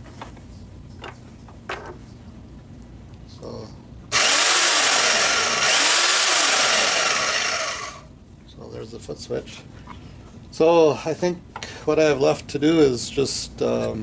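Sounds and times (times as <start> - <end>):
bandsaw running: 4.1 - 8.1.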